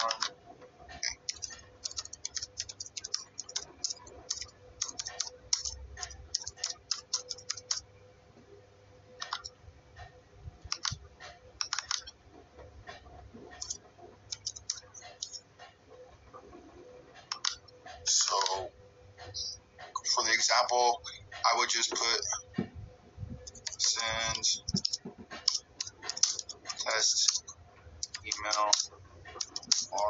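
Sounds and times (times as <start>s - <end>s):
computer keyboard typing: 0.0s - 0.4s, 1.0s - 7.9s, 9.2s - 9.6s, 10.6s - 12.2s, 13.5s - 15.4s, 17.2s - 18.6s, 23.4s - 30.0s.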